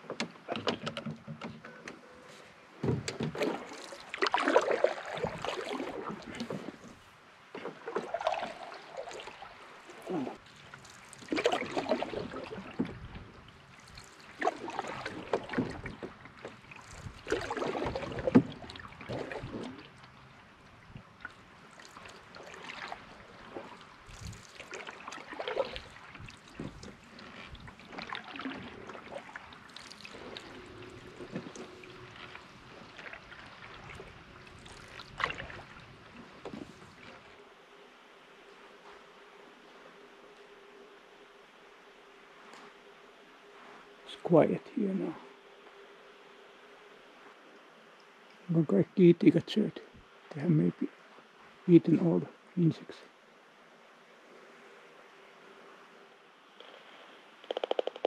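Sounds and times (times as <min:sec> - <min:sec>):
paddle splashing in water: 0:00.0 - 0:37.5.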